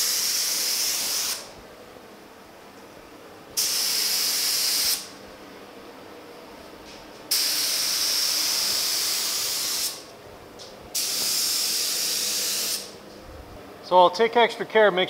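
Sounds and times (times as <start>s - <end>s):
paint spray gun hissing: 0.0s - 1.5s, 3.6s - 5.1s, 7.3s - 10.1s, 11.0s - 13.0s.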